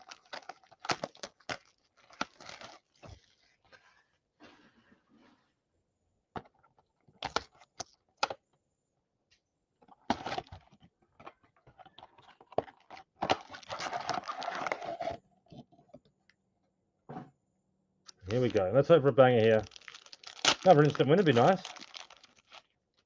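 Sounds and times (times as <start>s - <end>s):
foil packs crinkling: 0.0s - 3.6s, 12.2s - 15.1s, 18.2s - 23.0s
cardboard lid rustling: 10.0s - 15.2s.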